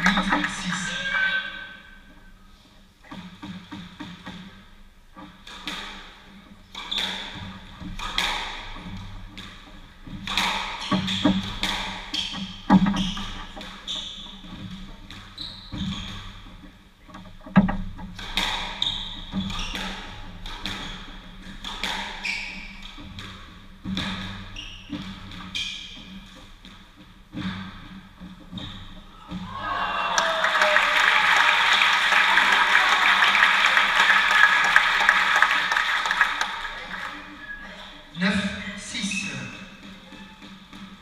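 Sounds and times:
squash ball hitting rackets and walls: 3.0s - 4.6s, 5.2s - 16.7s, 17.5s - 29.5s.

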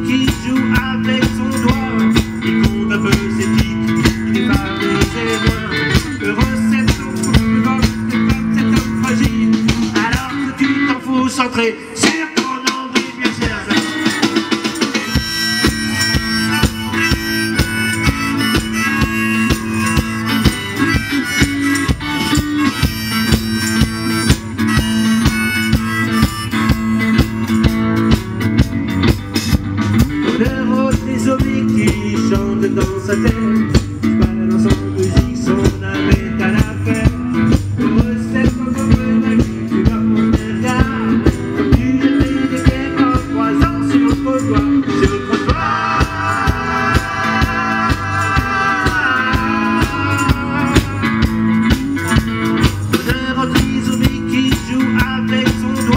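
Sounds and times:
guitars: 0.0s - 55.9s
steady drum beat: 0.0s - 55.9s
harmonica: 13.9s - 28.4s, 45.0s - 53.5s.

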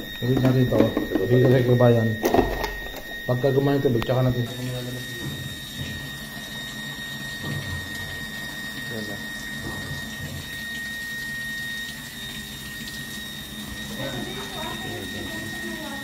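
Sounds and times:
water running into washing machine: 0.0s - 16.0s.

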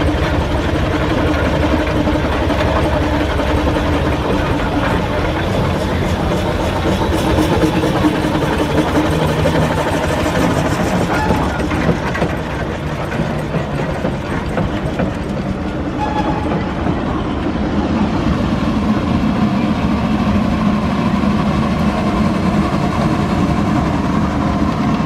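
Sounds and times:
rapid mechanical clanking: 0.0s - 17.3s
steam roller rumbling: 0.0s - 25.0s.

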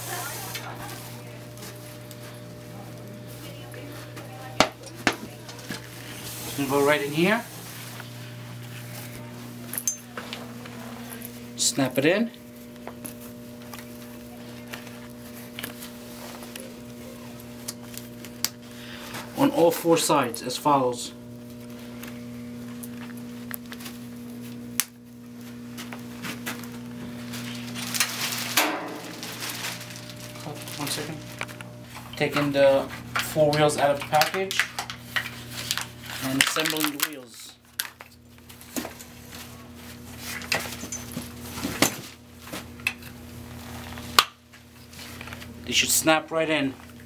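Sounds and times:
steady low hum: 0.0s - 47.0s
handling noises and small clicks: 33.1s - 39.4s.

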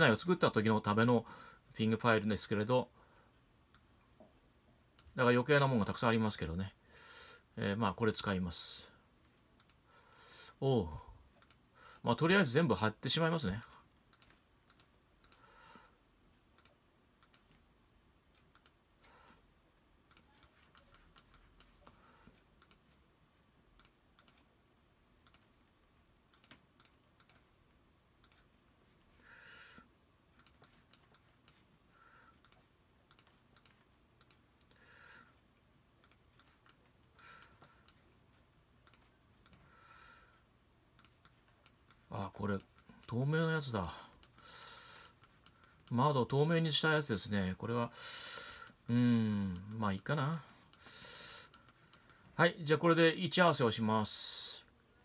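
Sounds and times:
computer mouse clicking: 9.6s - 9.8s, 11.4s - 11.6s, 13.5s - 15.4s, 16.6s - 17.6s, 18.3s - 18.8s, 20.1s - 23.0s, 23.8s - 24.5s, 25.2s - 25.6s, 26.3s - 27.5s, 28.2s - 29.0s, 30.4s - 31.7s, 32.3s - 34.8s, 36.0s - 38.1s, 38.8s - 39.7s, 41.0s - 46.0s, 48.6s - 52.3s.

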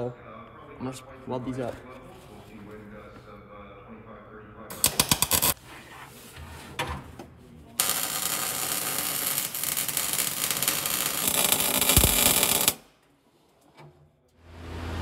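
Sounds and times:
welding arc burning: 4.7s - 5.6s, 7.8s - 12.9s.

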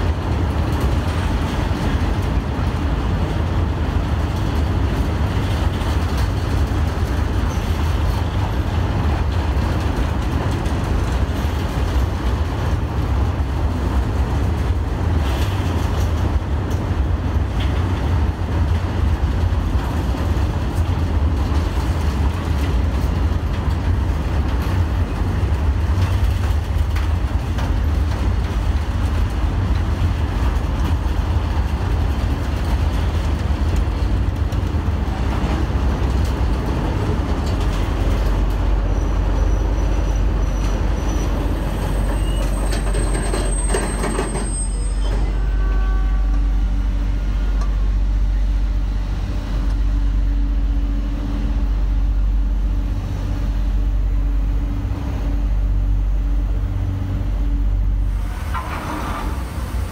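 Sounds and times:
train rumble: 0.0s - 59.9s
high-pitched train squeal: 38.9s - 46.6s, 58.1s - 59.8s.

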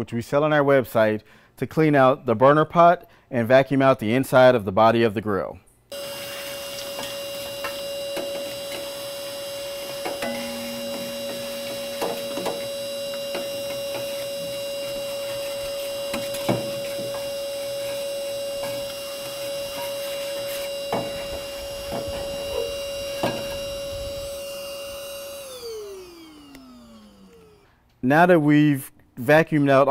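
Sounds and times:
vacuum motor whine: 5.9s - 27.8s.

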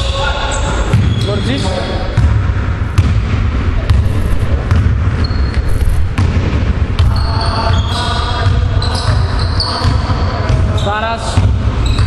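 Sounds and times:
sneaker squeaks: 0.9s - 2.1s, 11.8s - 12.0s
low rumble: 3.3s - 7.7s.

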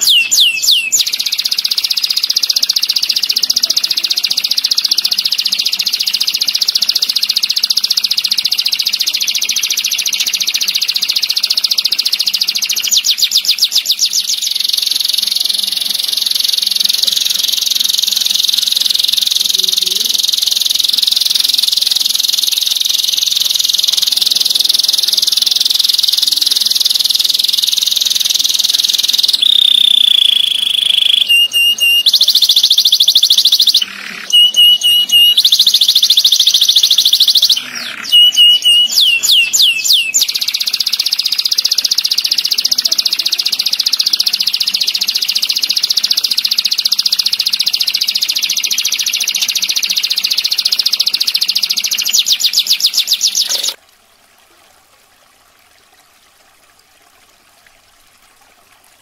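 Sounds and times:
canary singing trills: 0.0s - 53.8s.

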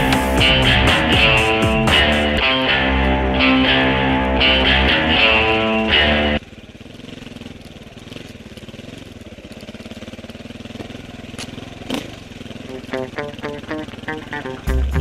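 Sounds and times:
guitar music: 0.0s - 6.4s, 12.6s - 15.0s
vehicle engine running low: 0.0s - 15.0s.

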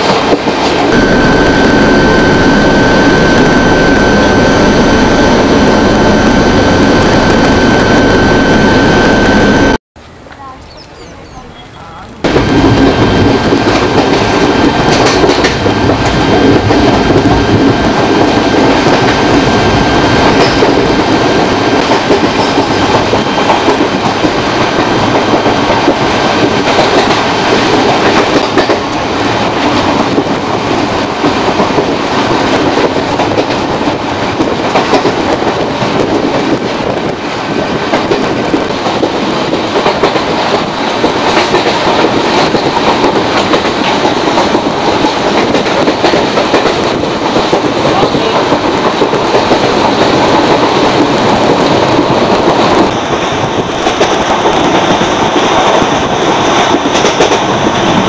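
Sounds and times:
train rumbling: 0.0s - 58.0s
wheels clattering over rails: 12.2s - 58.0s.

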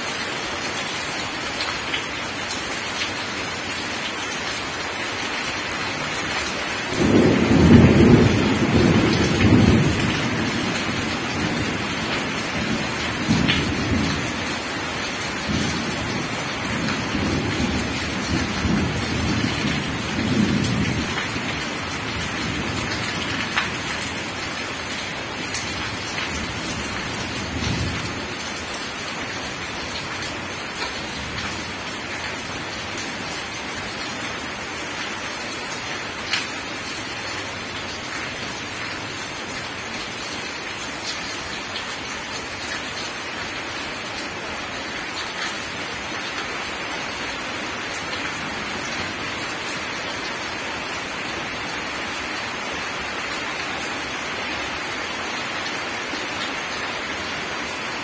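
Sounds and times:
heavy rain on gravel: 0.0s - 58.0s
thunder rumbling: 7.0s - 11.8s.

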